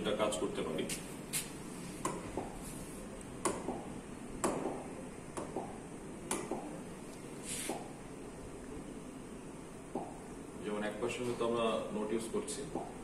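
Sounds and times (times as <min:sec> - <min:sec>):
short hiss: 0:07.4 - 0:07.8.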